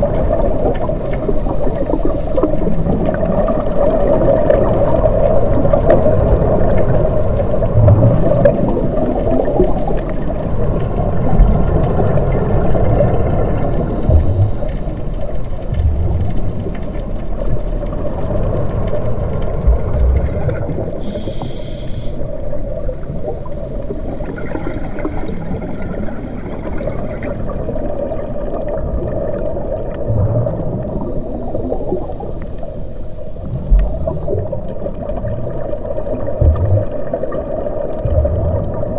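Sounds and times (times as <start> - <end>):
muffled gurgling rumbles: 0.0 - 38.9
underwater low drone: 0.0 - 38.9
brief high hiss: 21.0 - 22.2.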